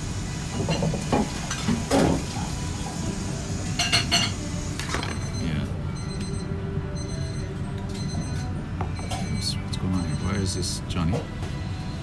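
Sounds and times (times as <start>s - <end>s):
glasses and dishes clinking: 3.8s - 5.3s.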